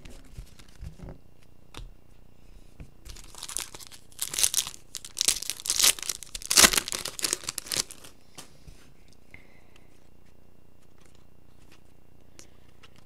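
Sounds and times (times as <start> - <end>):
foil wrapper tearing and crinkling: 3.1 - 8.2.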